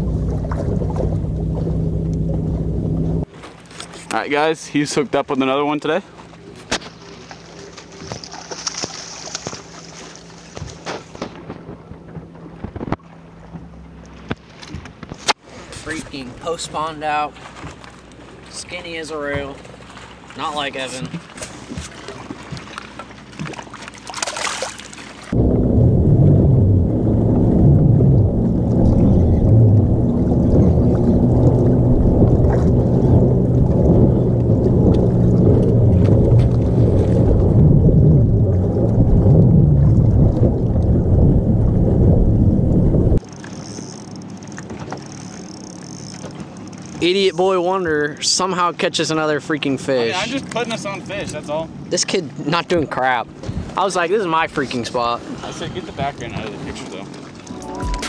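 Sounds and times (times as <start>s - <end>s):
steady low hum: 0.0s - 3.3s, 25.2s - 43.4s
waves lapping at boat hull: 0.0s - 25.5s, 26.1s - 57.8s
wind buffeting microphone: 25.3s - 43.2s, 55.2s - 56.8s.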